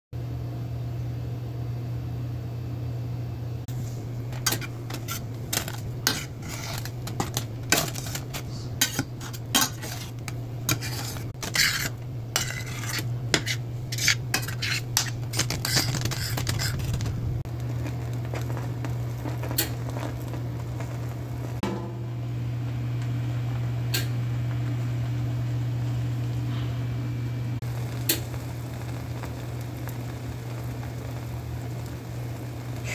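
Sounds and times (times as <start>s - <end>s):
steady low hum: 0.2s - 32.9s
utensils scraping metal pan: 3.7s - 17.4s.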